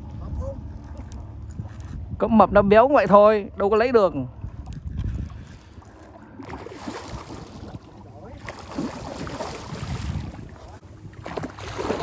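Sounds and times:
water lapping: 0.0 - 2.2, 4.2 - 12.0
wind buffeting microphone: 0.0 - 12.0.

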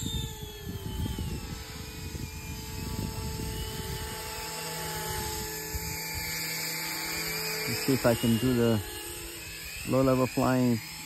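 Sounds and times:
model helicopter rotor whine: 0.0 - 11.0.

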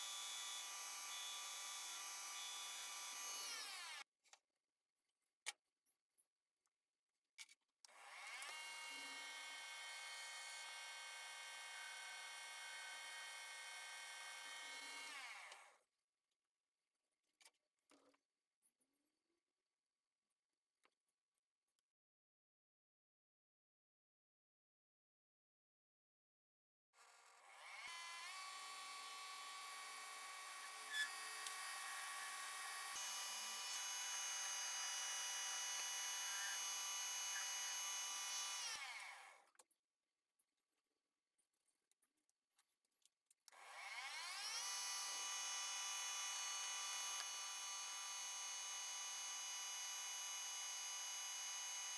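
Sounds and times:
click: 7.4 - 8.6
lathe motor whine: 27.4 - 39.2, 43.8 - 51.9.

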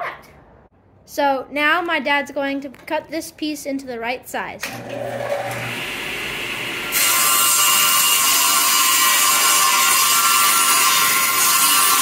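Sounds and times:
table saw cutting plywood: 4.8 - 12.0.

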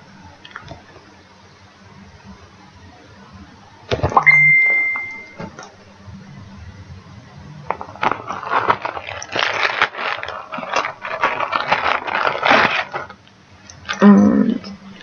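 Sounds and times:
brief pitched sound: 4.2 - 5.4
plastic bags crinkling: 7.7 - 13.2.

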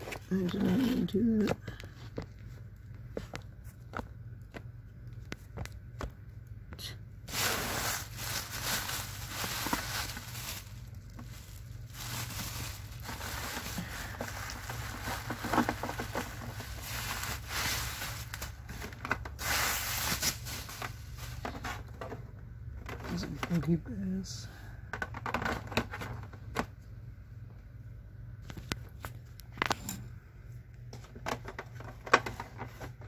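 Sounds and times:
bubble wrap crinkling: 7.3 - 22.0.

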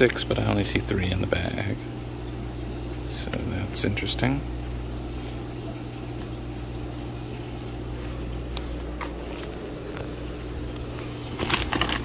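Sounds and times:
low machine hum: 0.0 - 12.0
plastic bags tapping: 11.4 - 12.0.

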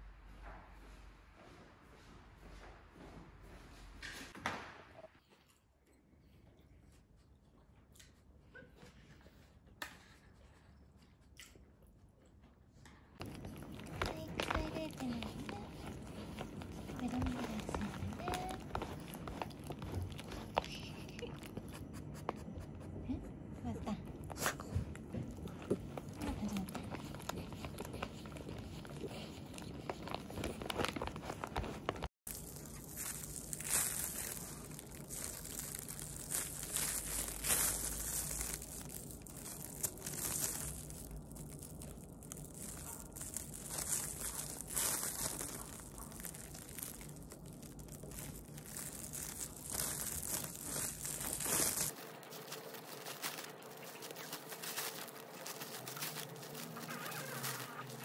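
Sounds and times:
plastic bag strips crinkling: 13.2 - 21.7, 25.7 - 58.0.

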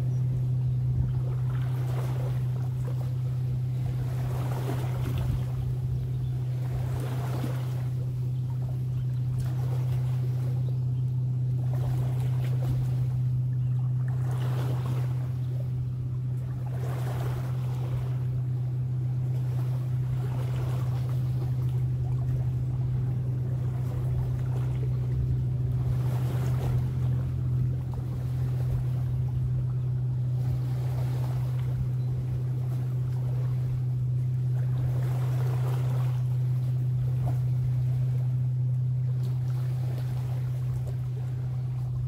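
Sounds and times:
lake waves washing on shore: 0.0 - 42.0
steady low drone: 0.0 - 42.0
wind: 0.0 - 42.0.

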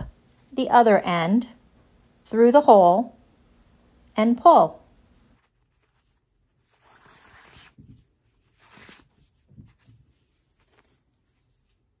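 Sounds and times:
fabric strips rustling: 5.1 - 12.0.

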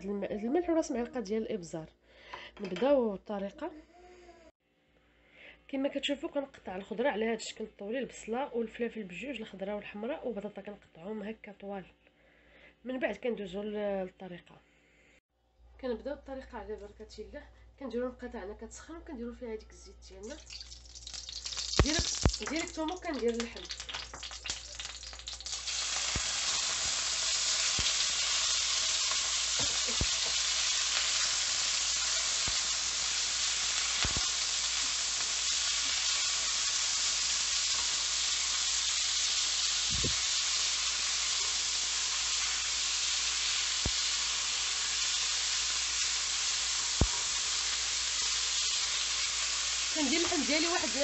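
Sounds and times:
meat sizzling in hot oil: 20.2 - 51.0.

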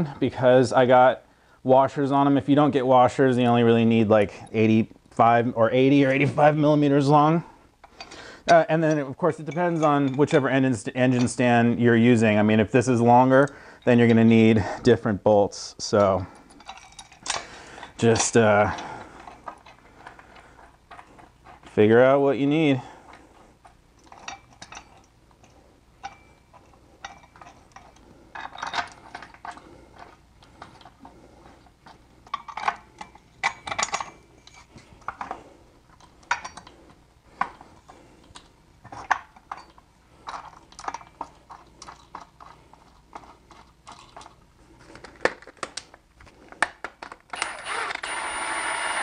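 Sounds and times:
metal bolts clinking: 7.8 - 11.5, 15.9 - 20.1, 20.8 - 44.4.

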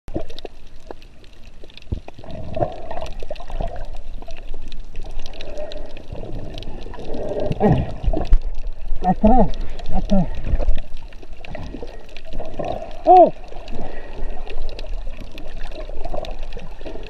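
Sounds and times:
muffled underwater water wash: 0.1 - 17.0.

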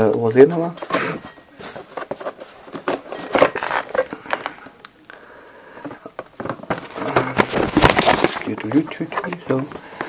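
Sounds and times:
paper rustling: 0.6 - 4.6, 6.4 - 10.0
cardboard box being handled: 6.4 - 9.8.

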